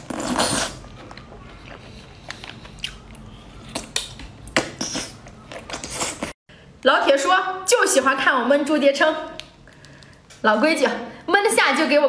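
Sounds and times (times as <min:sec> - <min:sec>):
wet chewing and lip smacks: 0:00.9 - 0:06.3.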